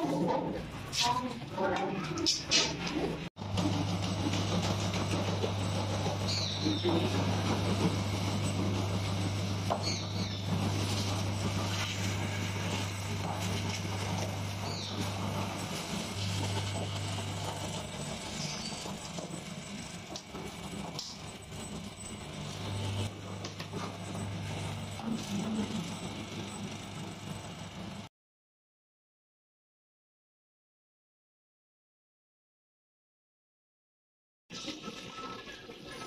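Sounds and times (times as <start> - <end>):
electric mincer humming: 2.2 - 28.1.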